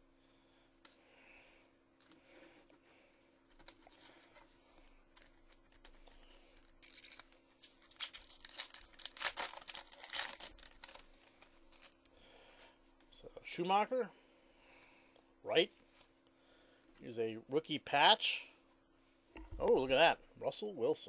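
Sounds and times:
foil wrapper tearing and crinkling: 5.1s - 12.0s.

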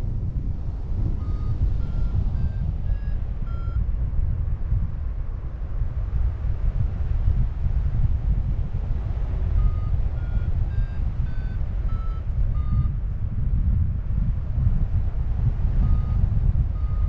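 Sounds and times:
wind buffeting microphone: 0.0s - 17.0s
short high beeps: 1.2s - 3.8s, 9.6s - 13.0s, 15.8s - 16.2s, 16.8s - 17.0s.

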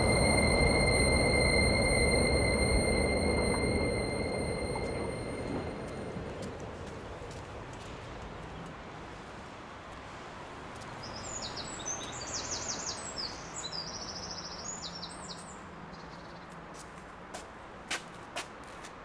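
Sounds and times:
songbird chirping and trilling: 11.0s - 16.5s.

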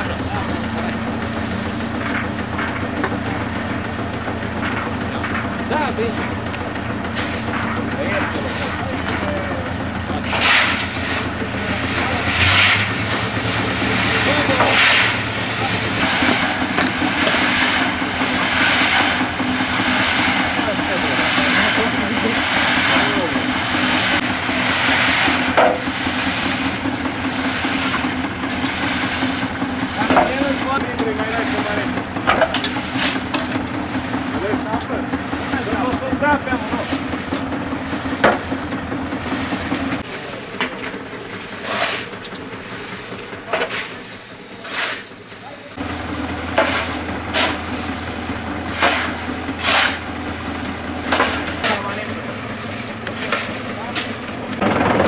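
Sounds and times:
concrete mixer churning: 0.0s - 55.0s
tractor diesel engine running: 0.0s - 55.0s
gravel shovelled into drum: 7.1s - 30.7s, 41.3s - 54.3s.

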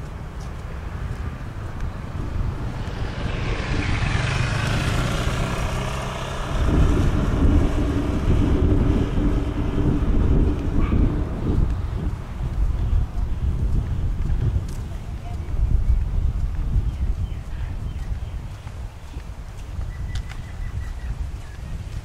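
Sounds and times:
vehicle engine running: 0.0s - 15.6s.

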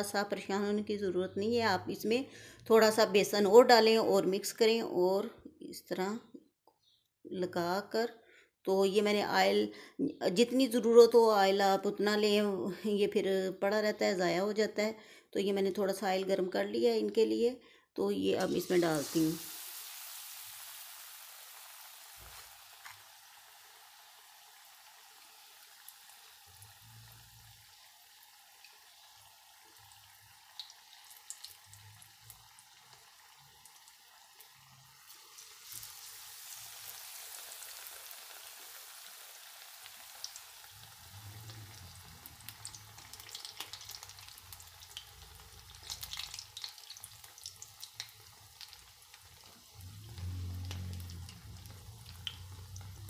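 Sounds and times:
chilies deep-frying in oil: 15.6s - 53.0s.

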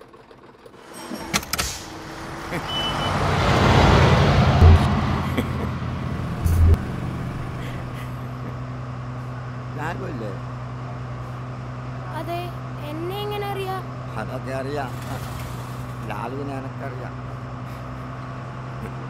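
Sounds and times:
bus engine running: 0.0s - 19.0s
sharp metallic clanks: 4.6s - 5.4s, 6.2s - 8.0s
low thumps: 4.6s - 8.1s.

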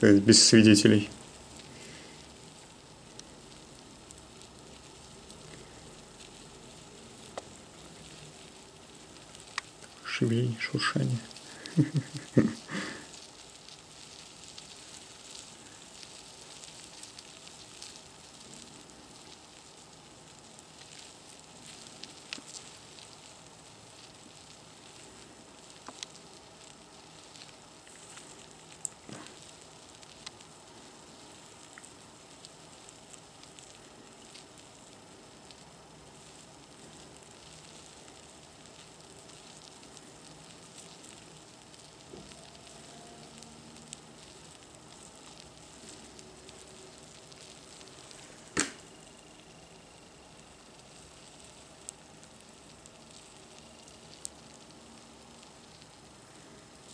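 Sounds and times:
larvae rustling in wood shavings: 0.0s - 56.9s
small ticks: 1.1s - 56.9s.

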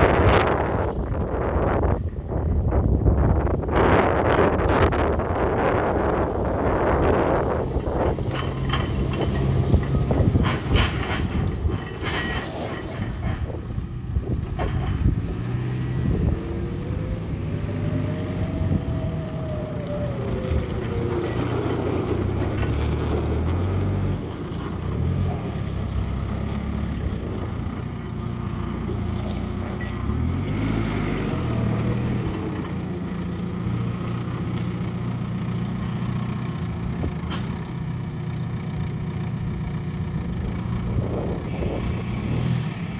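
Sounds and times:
diesel engine running: 0.0s - 42.9s
rising whine: 16.0s - 21.8s.

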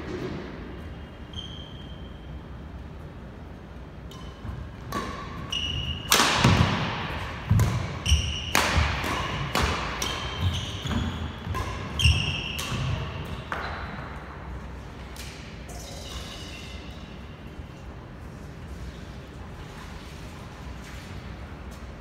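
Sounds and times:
sneakers squeaking: 0.0s - 2.8s, 4.0s - 14.4s, 15.2s - 18.0s
racket hitting shuttlecock: 4.1s - 14.1s.

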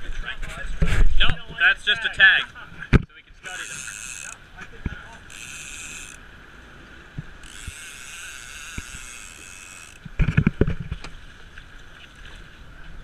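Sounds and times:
fishing reel ratcheting buzz: 3.5s - 4.4s, 5.1s - 6.3s, 7.3s - 10.2s.

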